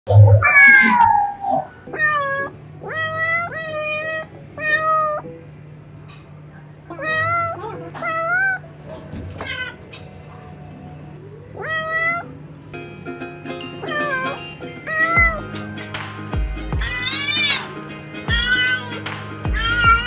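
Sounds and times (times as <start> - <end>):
cat meowing: 0.1 - 5.2, 6.9 - 8.7, 9.3 - 9.9, 11.4 - 12.4, 13.8 - 15.4, 16.8 - 17.7, 18.3 - 20.0
cat yowling: 0.1 - 5.2, 6.9 - 8.7, 9.3 - 9.9, 11.3 - 12.4, 13.8 - 15.4, 16.8 - 17.7, 18.3 - 20.0.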